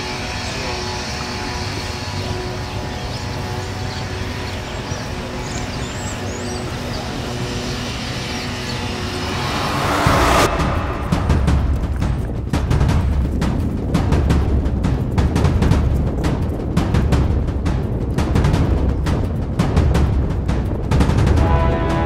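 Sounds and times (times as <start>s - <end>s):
city street traffic: 0.0s - 13.1s.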